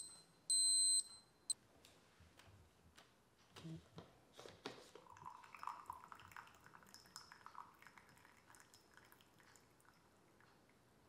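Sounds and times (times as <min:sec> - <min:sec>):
tea draining and dripping: 0:04.9 - 0:11.0.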